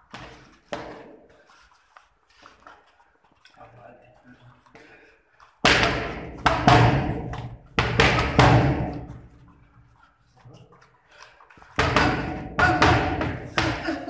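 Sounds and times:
boxing gloves smacking focus mitts: 0.0 - 1.3, 5.6 - 9.4, 11.2 - 14.0.

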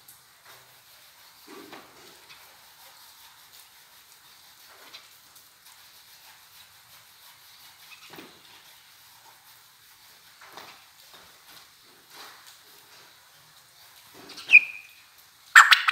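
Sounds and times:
steady background hiss: 0.0 - 15.9
quail calling: 14.4 - 14.9, 15.6 - 15.9.

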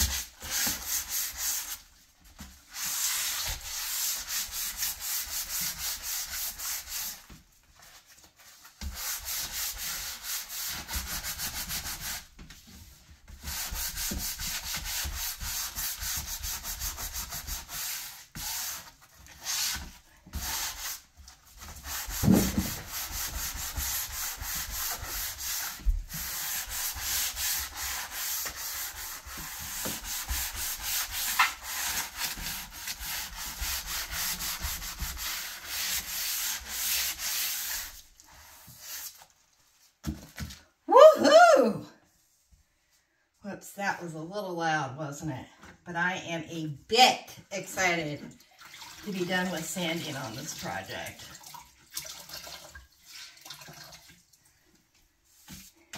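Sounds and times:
sandpaper rubbing on wood: 13.4 - 21.0, 21.6 - 39.1
thump: 22.2 - 22.8.

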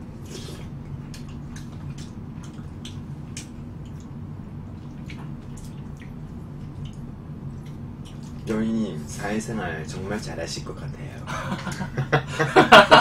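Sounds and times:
steady low hum: 0.0 - 13.0
wet chewing clicks and smacks: 0.2 - 8.5.

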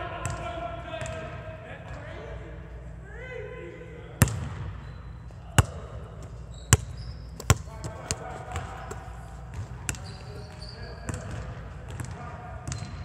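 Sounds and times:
basketball bouncing on gym floor: 4.2 - 4.8, 5.5 - 13.0.

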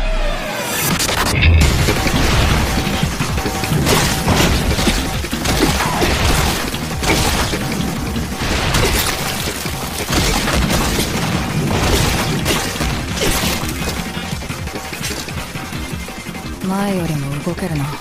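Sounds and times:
splattering: 1.6 - 15.6.

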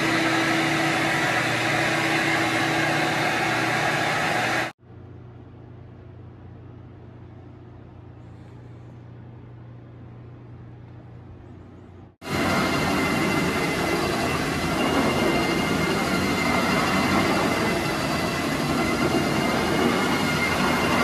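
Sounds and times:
extraction machine rushing noise: 0.0 - 4.8, 12.2 - 21.0
quiet steady hum: 4.8 - 12.2.

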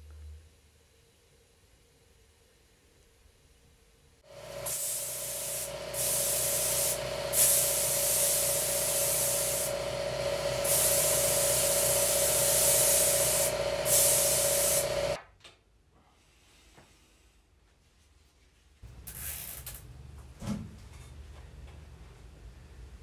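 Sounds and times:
loud hiss of spray: 4.3 - 15.2
power sprayer motor whine: 4.3 - 15.2.

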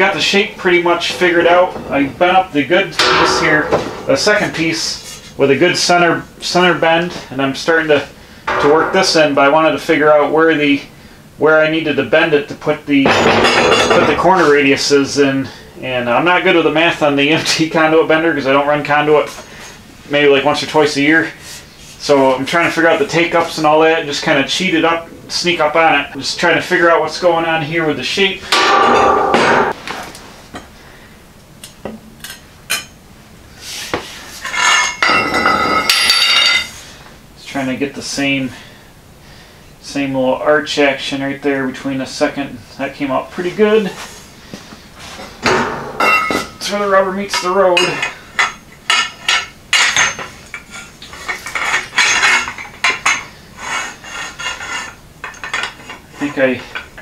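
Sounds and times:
metal conduit clinking and knocking: 0.0 - 5.0, 8.5 - 10.1, 28.5 - 29.8, 45.5 - 50.3
metal tube scraping: 0.2 - 5.3
ringing metal scrape: 0.8 - 5.2, 8.5 - 10.0.

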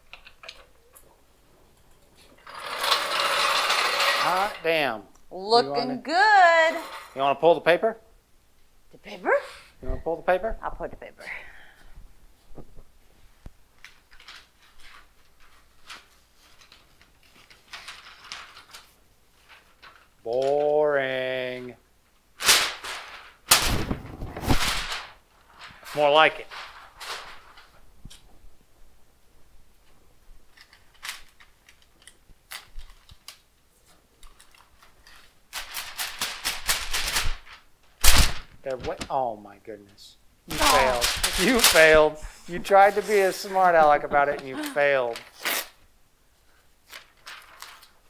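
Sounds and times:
masking paper rustling: 12.4 - 21.2, 22.4 - 28.3, 29.8 - 39.3, 40.5 - 45.8, 46.4 - 48.0.

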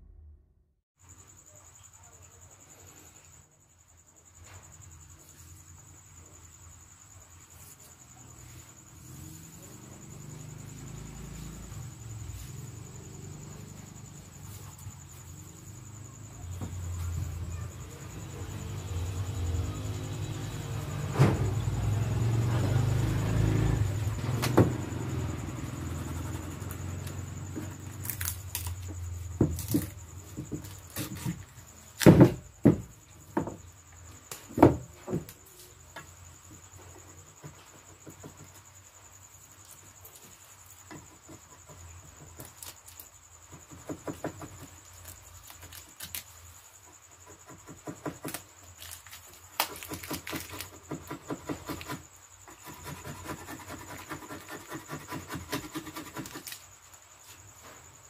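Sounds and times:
road traffic rumble: 8.4 - 30.3
blade scraping wood: 22.9 - 31.5, 47.4 - 56.6
cricket bat knocking on workbench: 32.0 - 33.7.

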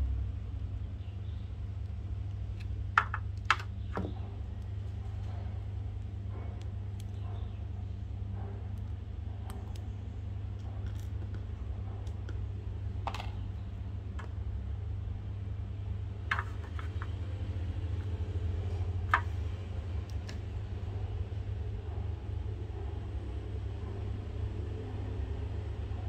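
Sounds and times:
steady low hum: 0.0 - 26.0
light clicks and handling noises: 8.4 - 14.5, 16.2 - 21.0.

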